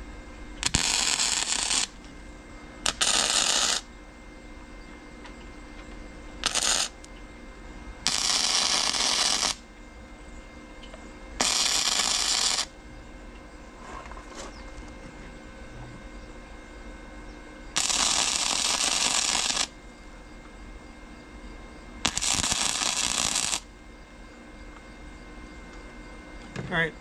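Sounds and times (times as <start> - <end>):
welding arc crackling: 0.6 - 2.1, 2.8 - 3.9, 6.4 - 7.1, 8.0 - 9.7, 11.4 - 12.8, 17.8 - 19.8, 22.0 - 23.7.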